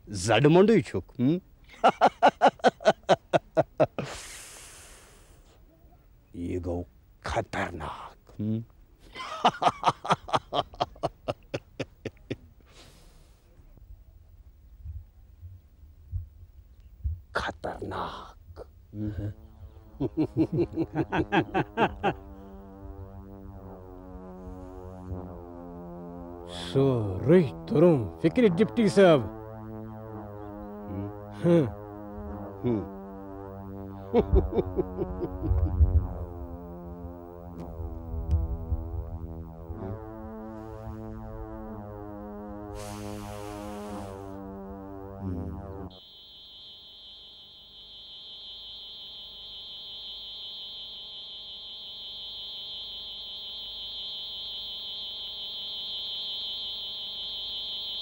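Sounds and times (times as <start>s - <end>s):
low rumble: 18.9s - 45.9s
held synthesizer chord: 18.9s - 58.0s
quick run of bending notes: 19.3s - 46.0s
hissing swell: 36.3s - 58.0s.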